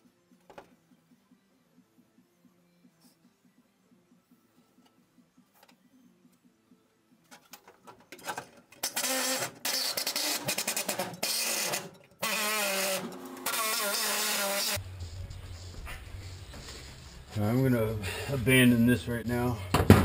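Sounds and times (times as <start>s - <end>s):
die grinder grinding steel: 8.8s - 14.8s.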